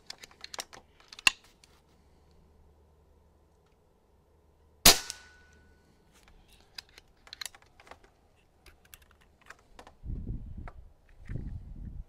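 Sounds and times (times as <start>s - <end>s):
rifle handling clicks and knocks: 0.0s - 1.8s, 6.2s - 10.0s
air rifle shot: 4.8s - 5.4s.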